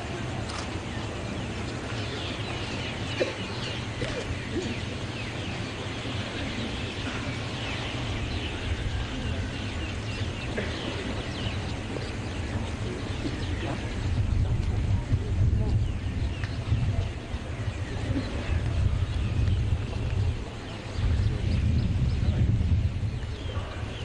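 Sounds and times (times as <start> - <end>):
small birds chirping: 0.0 - 24.0
steady low rumble: 0.0 - 24.0.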